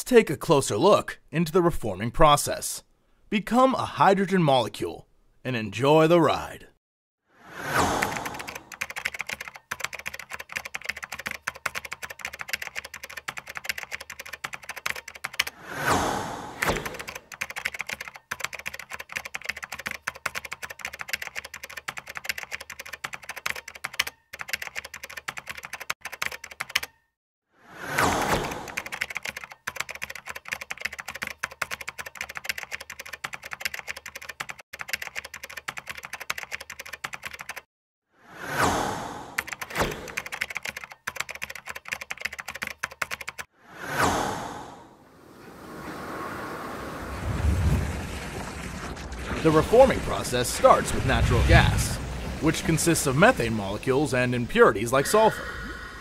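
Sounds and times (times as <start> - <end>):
keyboard key clicks: 16.6 - 27.0
sweeping whoosh: 43.6 - 48.1.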